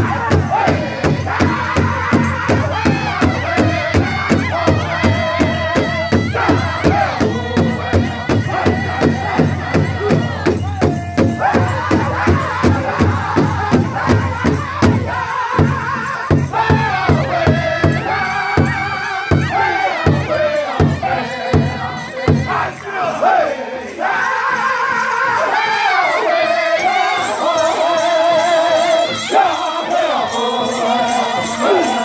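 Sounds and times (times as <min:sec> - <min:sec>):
large drum beating: 0:00.0 - 0:22.6
men singing in high voices: 0:00.0 - 0:32.0.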